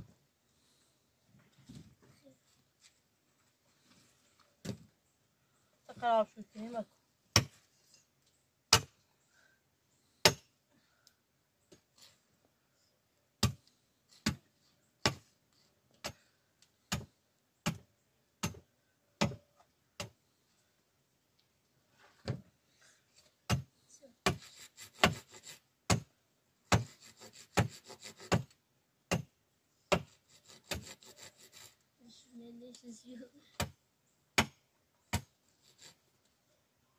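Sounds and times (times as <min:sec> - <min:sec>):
scraping and rasping on wood: 0:24.2 - 0:25.6, 0:26.7 - 0:28.5, 0:29.9 - 0:31.8, 0:35.5 - 0:36.1.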